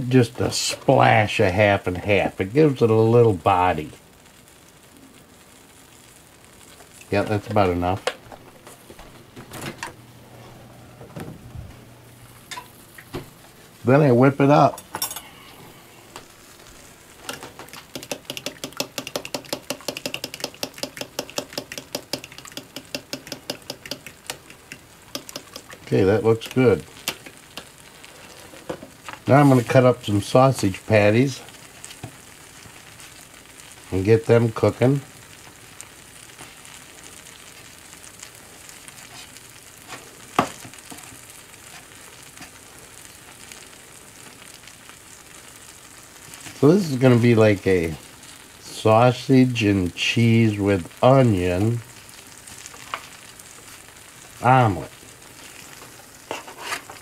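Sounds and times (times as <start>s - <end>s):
onions sizzling in a frying pan: 0.0s - 57.0s
whisk clicking against a bowl: 17.7s - 25.8s.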